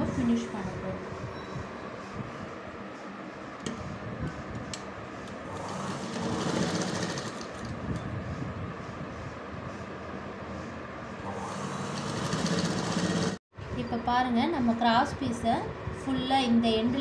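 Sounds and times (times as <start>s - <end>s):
sewing machine running: 5.5s - 7.7s, 11.3s - 13.4s.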